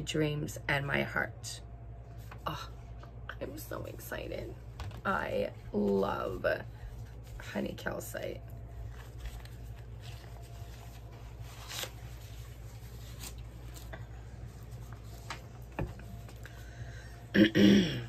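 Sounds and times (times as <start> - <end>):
steady low hum: 0.0 - 18.0
paper rustling: 8.7 - 16.4.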